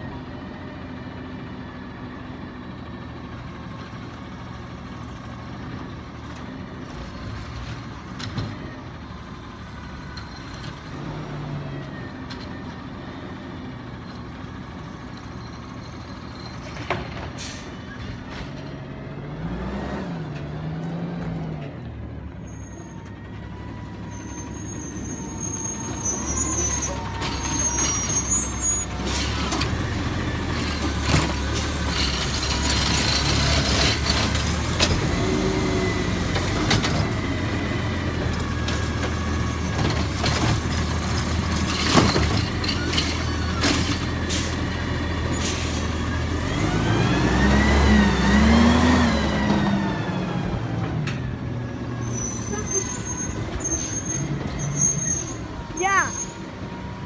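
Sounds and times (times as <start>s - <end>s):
garbage truck diesel engine: 0.0s - 57.0s
air brakes hissing: 17.4s - 18.0s.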